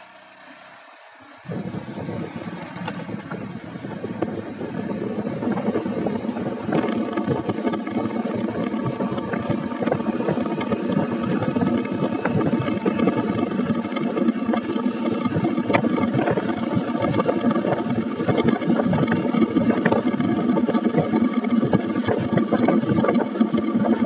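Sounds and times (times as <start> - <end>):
road noise: 0.0 - 18.5
motorcycle engine: 0.0 - 24.0
wind buffeting microphone: 1.5 - 24.0.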